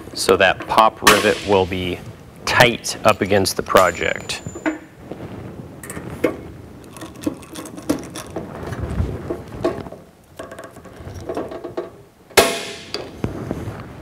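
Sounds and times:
rivet gun clicking and creaking: 0:06.9 - 0:08.8.

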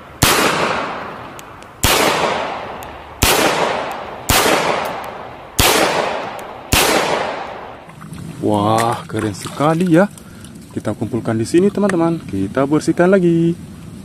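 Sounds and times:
pistol shots with echo: 0:00.2 - 0:07.8.

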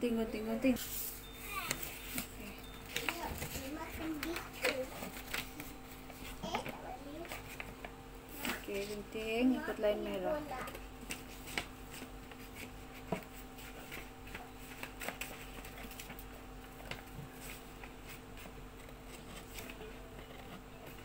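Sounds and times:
steady low hum: 0:00.0 - 0:21.0
paper rustling: 0:00.8 - 0:09.0, 0:10.5 - 0:21.0
scissors snipping paper: 0:02.9 - 0:08.8.

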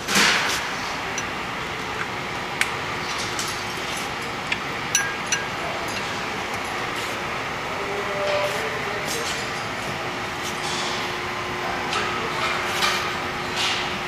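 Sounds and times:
sharp metallic clinks: 0:04.9 - 0:06.8.

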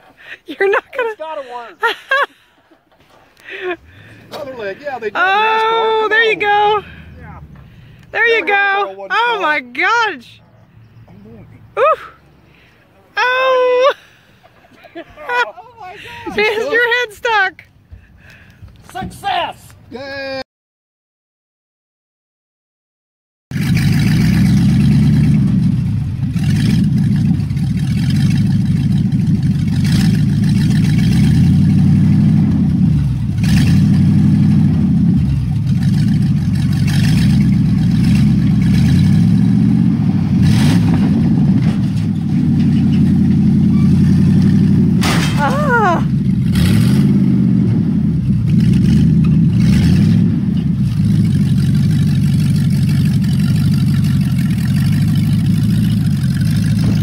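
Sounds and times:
car engine revving: 0:23.5 - 0:57.0
short high squeal: 0:43.7 - 0:44.0.

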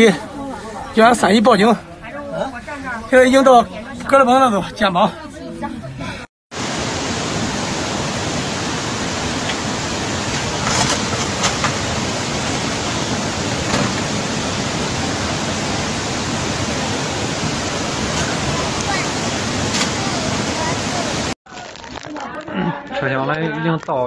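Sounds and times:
floodwater rushing: 0:06.5 - 0:22.1.

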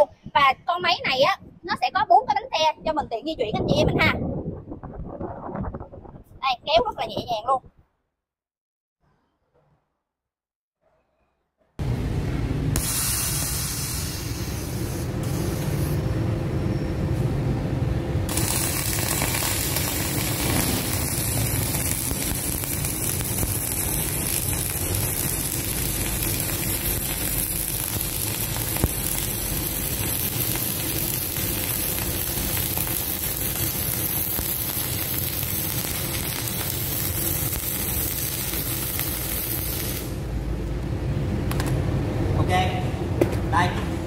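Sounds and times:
welding arc crackling hiss: 0:12.7 - 0:16.1, 0:18.3 - 0:40.4
welding pop: 0:18.3 - 0:40.2.

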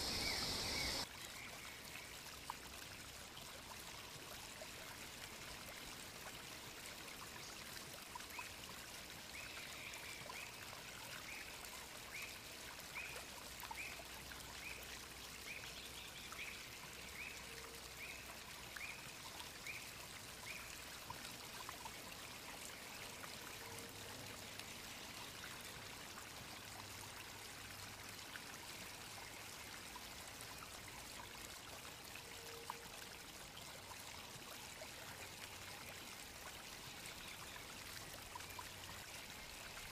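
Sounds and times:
steady rushing hiss: 0:00.0 - 0:01.0.

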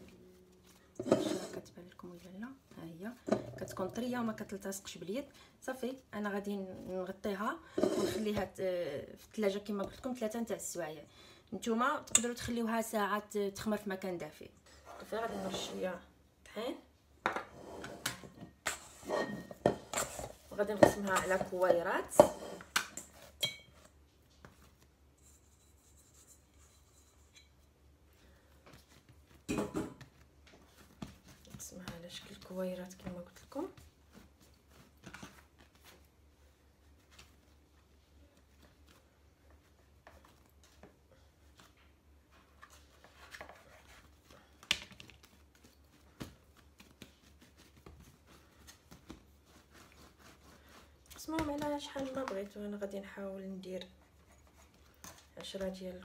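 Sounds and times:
plastic scraper scraping a metal bowl: 0:15.0 - 0:15.8.

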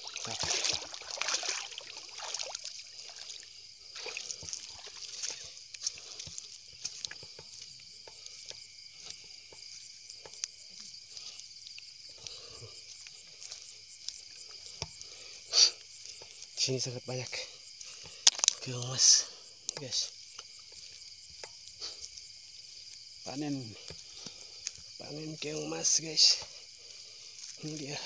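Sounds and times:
water sloshing and splashing: 0:00.0 - 0:16.6
night insects chorus: 0:00.0 - 0:28.0.

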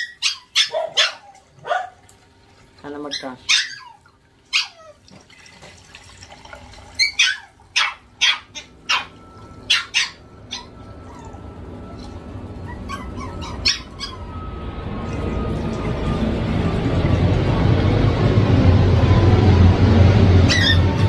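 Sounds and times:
dog barking: 0:00.0 - 0:02.0, 0:03.2 - 0:03.9, 0:07.1 - 0:10.7
water pouring into fish tank: 0:03.9 - 0:08.2, 0:14.8 - 0:18.8.

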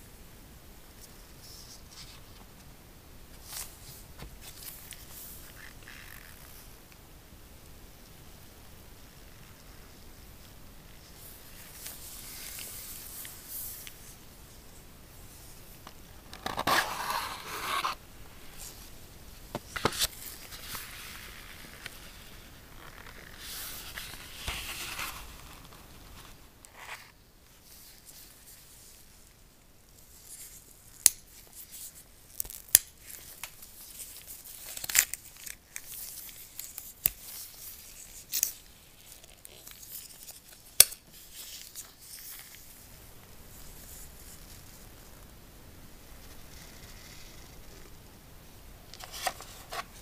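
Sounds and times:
packaging sliding and tearing: 0:16.3 - 0:18.0
paper wrap pulled off: 0:32.3 - 0:42.6.

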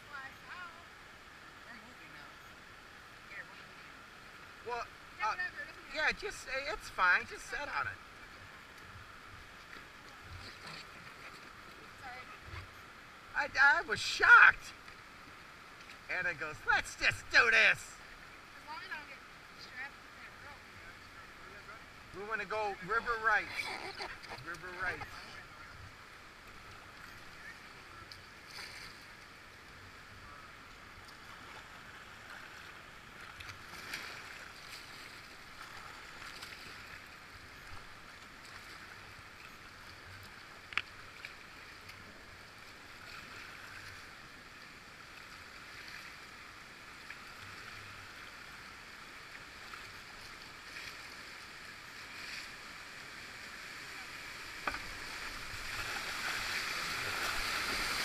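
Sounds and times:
soft splashes: 0:31.0 - 0:44.3, 0:49.2 - 0:58.0
whitewater river rushing: 0:51.4 - 0:58.0.

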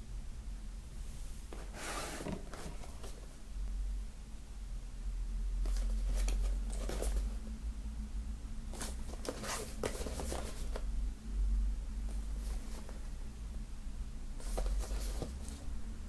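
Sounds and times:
hands rustling cardboard box: 0:08.8 - 0:10.8, 0:14.4 - 0:15.6.

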